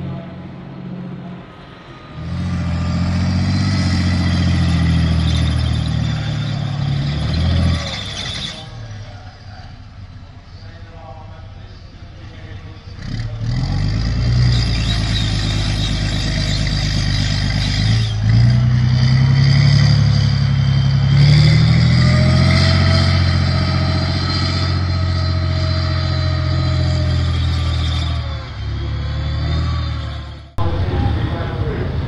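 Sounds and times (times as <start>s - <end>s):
diesel engine under load: 0.0s - 32.0s
steady whine: 14.6s - 32.0s.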